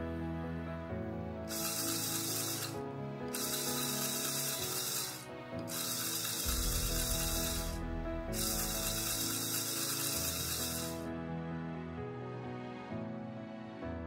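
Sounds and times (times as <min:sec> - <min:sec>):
plastic gears ratcheting clatter: 0:01.5 - 0:07.8, 0:08.4 - 0:11.0.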